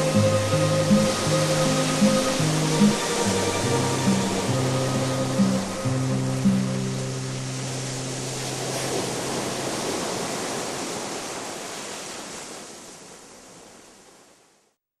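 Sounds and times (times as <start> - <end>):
rushing noise swell: 0.0 - 8.9.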